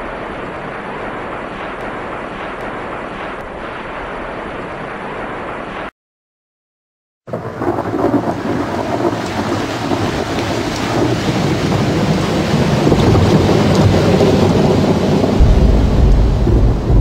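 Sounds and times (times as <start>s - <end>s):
volcano roaring and rumbling: 7.3s - 17.0s.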